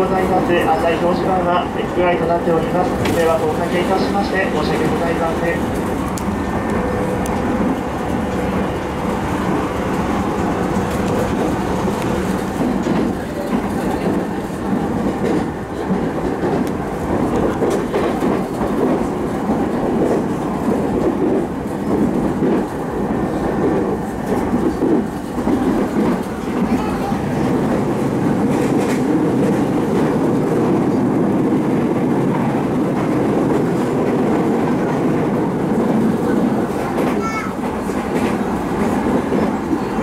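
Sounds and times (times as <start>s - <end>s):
train wheels rumbling on rail: 0.0s - 40.0s.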